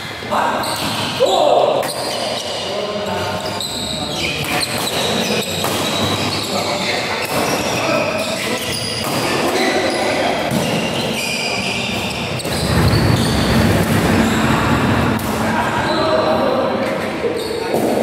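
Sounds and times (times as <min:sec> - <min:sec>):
shoe squeaks on court: 0:03.3 - 0:14.7, 0:17.3 - 0:17.7.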